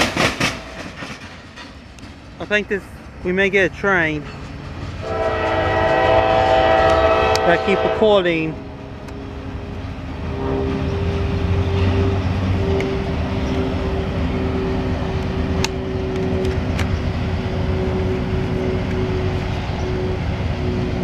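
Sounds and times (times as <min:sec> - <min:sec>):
engine hum with whine: 0:08.8 - 0:21.0.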